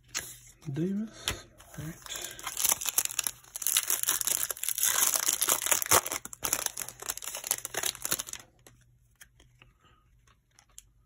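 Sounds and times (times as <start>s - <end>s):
foil wrapper tearing and crinkling: 2.2s - 8.6s.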